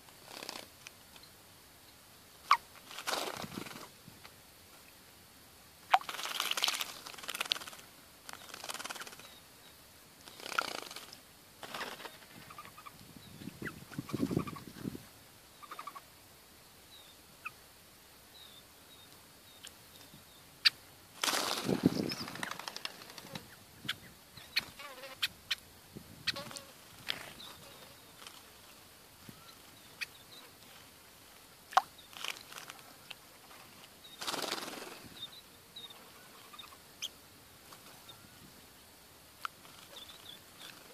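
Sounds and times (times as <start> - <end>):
wings fluttering: 0.0 - 1.2, 2.4 - 4.2, 5.8 - 9.4, 10.2 - 15.0, 19.9 - 25.6, 26.2 - 31.0, 31.7 - 35.3, 35.9 - 38.5, 39.4 - 40.9
small birds chirping: 5.8 - 17.6, 18.3 - 30.9, 31.6 - 40.9
birds splashing water: 5.9 - 9.2.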